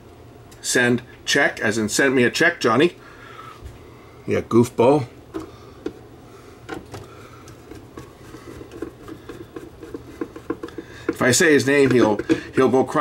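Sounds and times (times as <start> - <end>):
low steady hum: 0.0 - 13.0
clicks and taps on plastic: 6.7 - 12.4.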